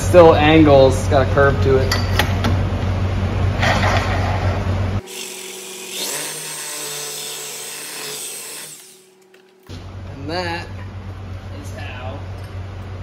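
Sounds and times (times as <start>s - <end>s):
reciprocating saw cutting metal: 5.0s - 9.2s.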